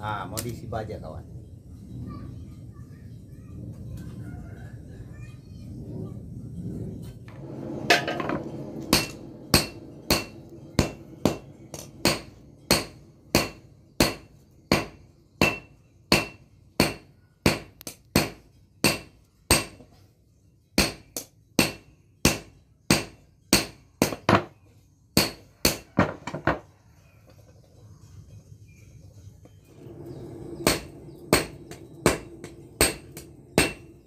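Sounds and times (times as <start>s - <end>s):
hammer blows ringing on anvil: 8.9s - 11.4s, 12.0s - 19.8s, 21.6s - 24.5s, 30.6s - 33.9s.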